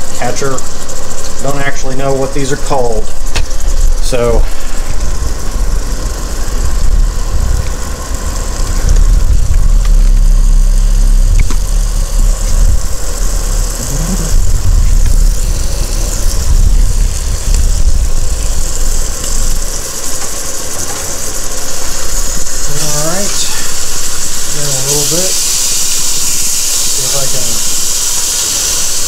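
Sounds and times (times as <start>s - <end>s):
burger patties sizzling on a griddle: 0.0s - 29.0s
low rumble: 3.0s - 24.8s.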